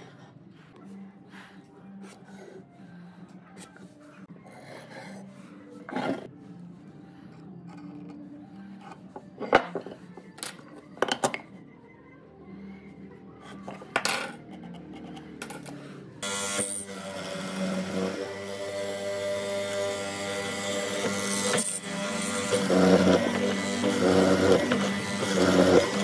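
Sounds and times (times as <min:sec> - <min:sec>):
power tool running: 0:16.2 - 0:26.0.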